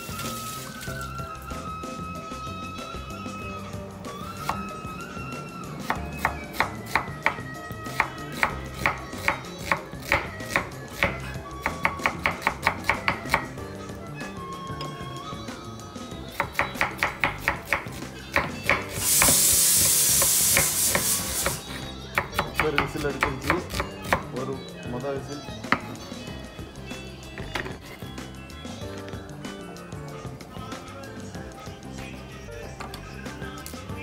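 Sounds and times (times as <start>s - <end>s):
pressure cooker whistle: 19.0s - 21.6s
knife chopping on wooden board: 22.2s - 24.3s.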